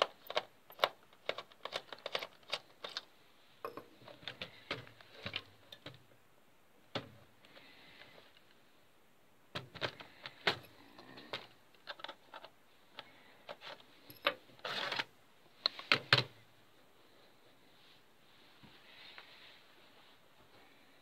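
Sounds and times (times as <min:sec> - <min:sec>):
plastic and metal clicks and knocks: 0:03.7 - 0:06.1, 0:09.5 - 0:10.7.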